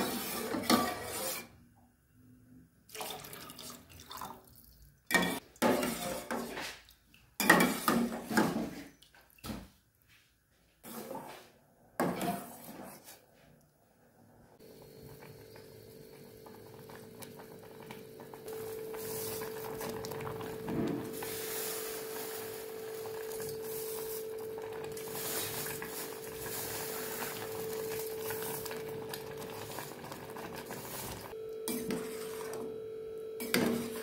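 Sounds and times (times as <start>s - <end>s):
water boiling in a pot: 14.6s - 32.6s.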